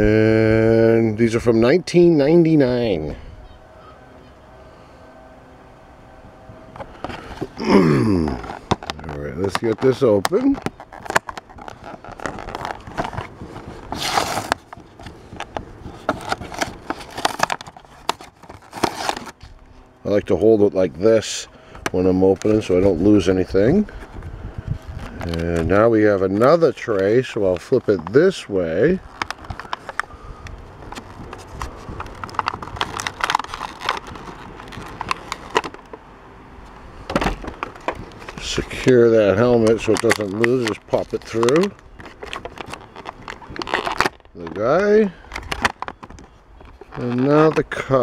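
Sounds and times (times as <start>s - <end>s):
plastic blister pack crackling: 6.8s - 19.6s, 24.8s - 36.1s, 36.7s - 48.0s
tearing rustle: 6.8s - 19.6s, 29.0s - 35.9s, 37.6s - 47.9s.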